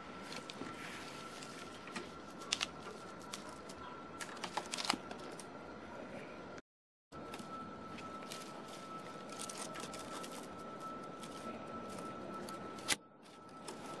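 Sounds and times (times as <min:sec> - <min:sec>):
dry twigs and leaves crackling: 0:00.0 - 0:05.5, 0:07.2 - 0:14.0
thin high tone: 0:07.2 - 0:14.0.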